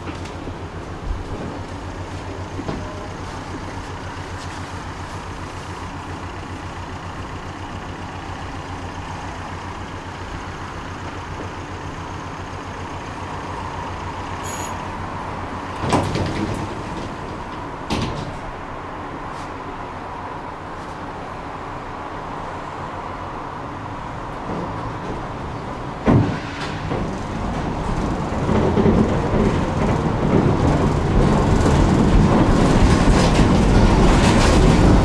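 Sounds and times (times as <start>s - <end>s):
tram rumbling: 0.0s - 35.0s
loud clunks: 15.8s - 18.6s.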